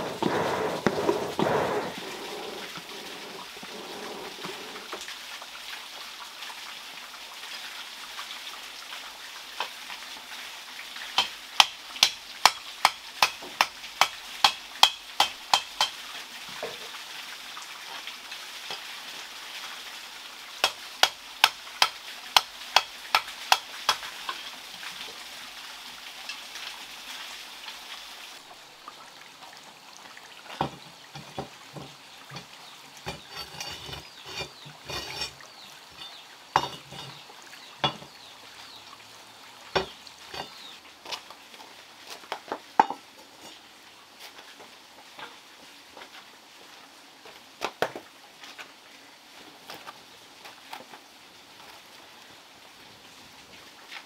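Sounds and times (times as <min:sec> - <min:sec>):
steady background hiss: 0:00.0 - 0:05.6.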